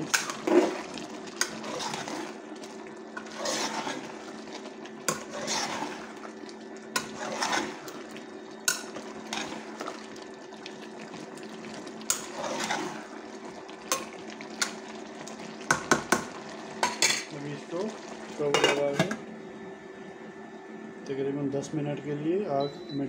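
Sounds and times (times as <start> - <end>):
spoon stirring wet food in pot: 0.0 - 17.3.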